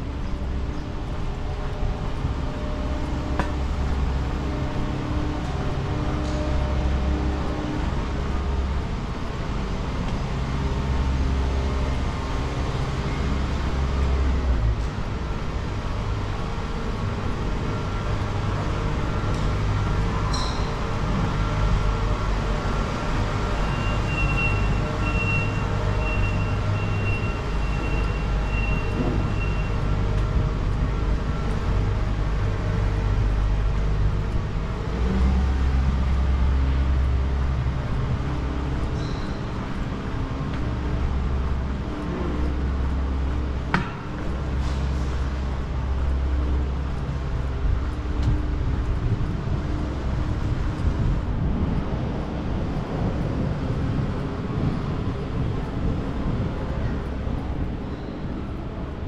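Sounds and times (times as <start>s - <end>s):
vehicle engine hum: 0.0s - 59.0s.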